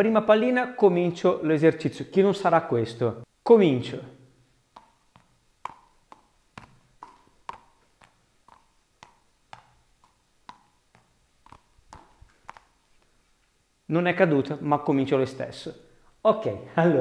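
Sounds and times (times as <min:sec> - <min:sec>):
balls landing in palms: 0:04.6 - 0:13.1.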